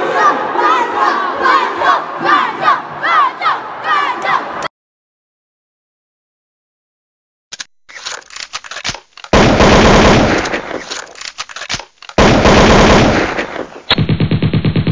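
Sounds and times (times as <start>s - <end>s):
automatic gunfire: 9.3s - 10.9s, 12.2s - 14.9s.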